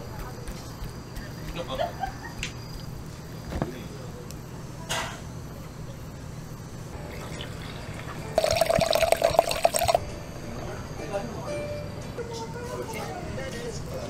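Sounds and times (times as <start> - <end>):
wine pouring into a glass: 7.0 - 10.0.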